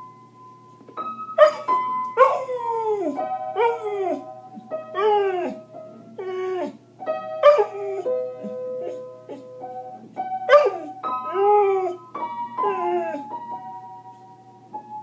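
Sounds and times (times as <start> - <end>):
dog howling: 2.2 - 4.2, 5.0 - 5.6, 6.2 - 6.8, 7.4 - 8.2, 10.5 - 12.0, 12.6 - 13.3.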